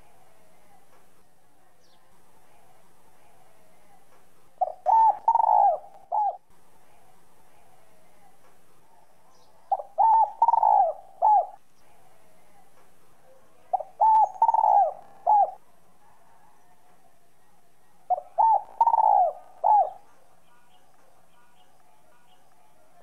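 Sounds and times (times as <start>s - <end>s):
dove cooing: 4.6s - 6.4s, 9.7s - 12.6s, 13.3s - 15.6s, 18.1s - 20.7s.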